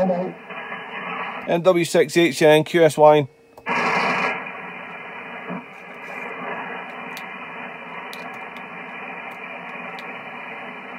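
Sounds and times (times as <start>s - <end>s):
radio static hiss: 0.0s - 10.9s.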